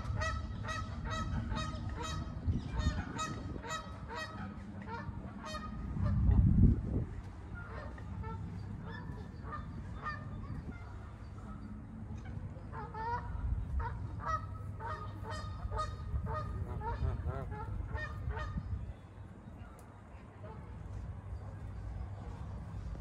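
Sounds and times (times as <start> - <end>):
geese honking: 0.0 - 6.2, 7.5 - 18.7
low steady rumble: 0.0 - 23.0.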